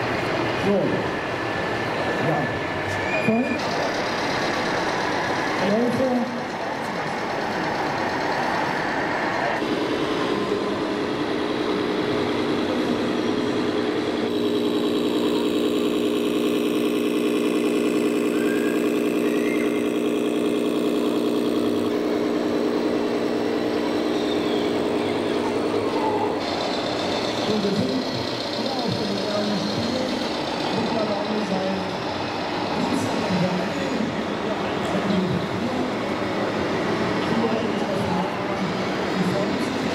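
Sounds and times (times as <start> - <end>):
diesel truck engine idling: 3.6 - 39.9
crowd murmur: 17.2 - 39.9.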